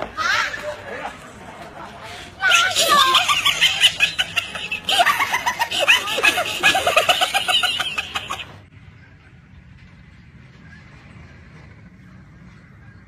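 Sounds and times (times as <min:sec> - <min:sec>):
high-pitched laughter: 0:02.4 - 0:08.6.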